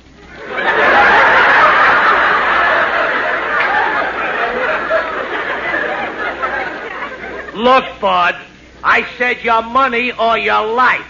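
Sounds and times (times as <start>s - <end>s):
audience laughing: 0.3s - 7.9s.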